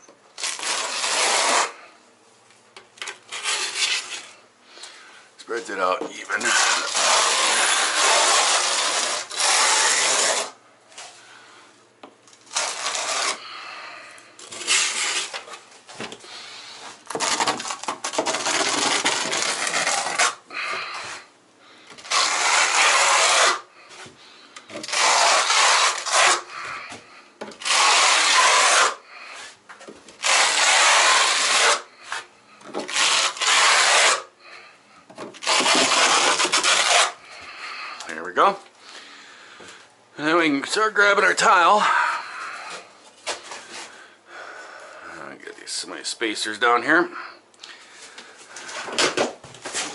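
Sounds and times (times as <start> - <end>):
trowel scraping mortar on wall: 0.4 - 1.8, 6.1 - 10.6, 12.5 - 13.5, 14.4 - 15.6, 22.0 - 23.7, 24.7 - 26.6, 27.6 - 29.6, 30.2 - 34.3, 35.4 - 37.2.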